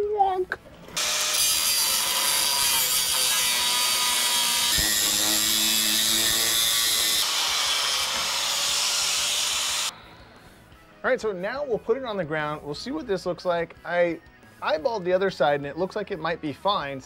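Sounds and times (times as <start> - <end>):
angle grinder cutting metal: 1.0 - 9.9.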